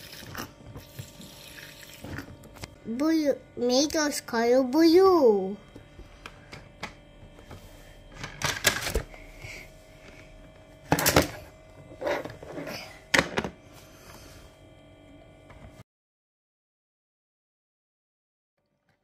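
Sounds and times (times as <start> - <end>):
plastic toys clattering on table: 8.2 - 9.0.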